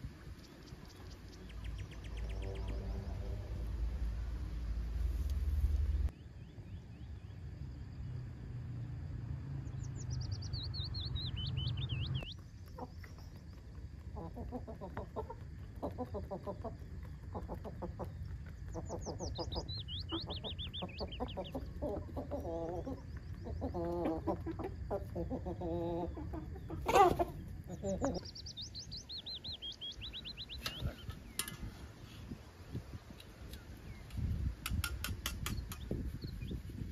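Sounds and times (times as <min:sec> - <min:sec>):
songbird singing: 0:00.0 - 0:36.9
hens clucking: 0:11.4 - 0:31.2.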